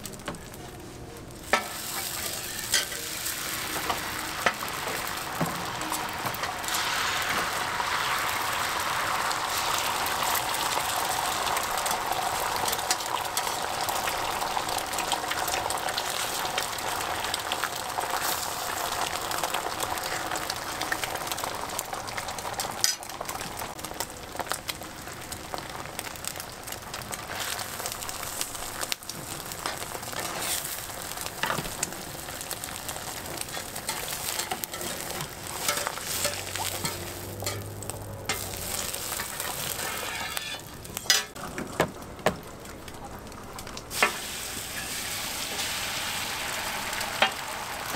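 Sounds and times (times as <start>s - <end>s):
egg sizzling on griddle: 0.0s - 47.9s
metal spatula scraping griddle: 1.5s - 3.2s, 29.6s - 30.8s, 33.3s - 41.4s.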